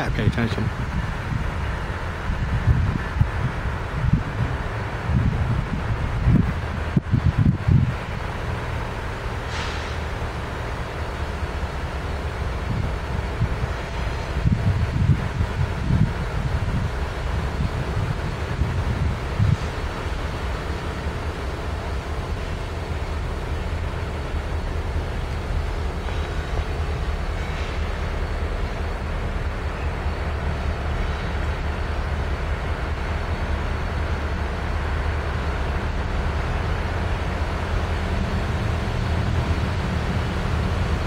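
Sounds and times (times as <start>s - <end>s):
diesel locomotive engines rumbling: 0.0s - 41.0s.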